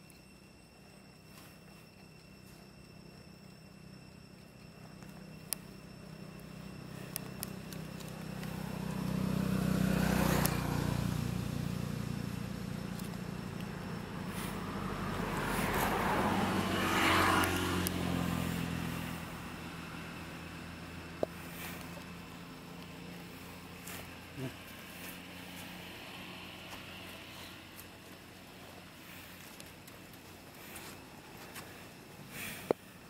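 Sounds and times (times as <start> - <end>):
vehicles passing on road: 0.0 - 33.0.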